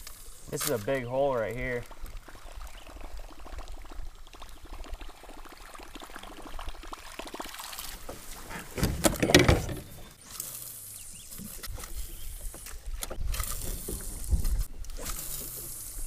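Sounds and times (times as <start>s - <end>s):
water sloshing against kayak: 7.0s - 16.0s.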